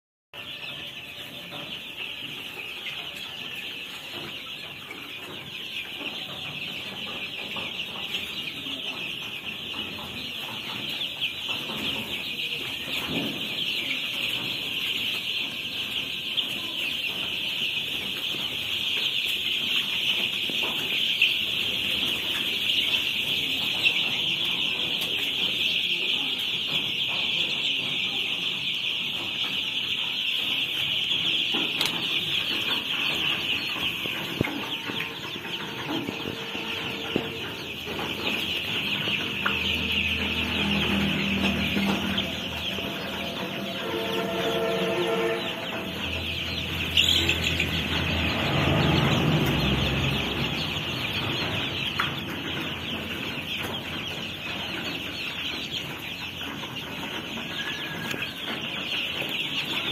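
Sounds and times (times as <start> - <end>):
chicks peeping: 0.3 - 59.9.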